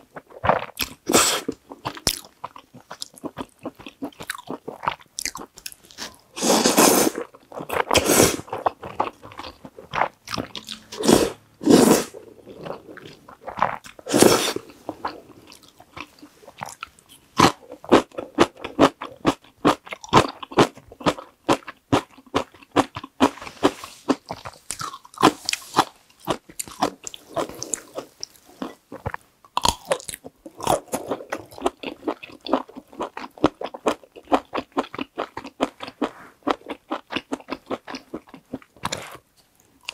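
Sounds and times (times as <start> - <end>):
slurping noodles: 6.4 - 8.6, 10.9 - 15.3.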